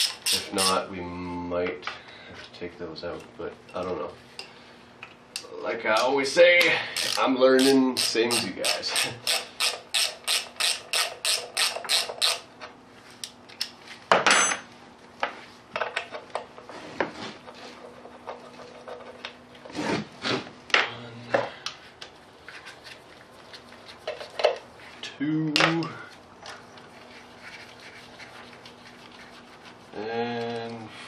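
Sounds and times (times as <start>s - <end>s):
ratchet wrench ratcheting: 0.0s - 0.8s, 6.9s - 12.5s.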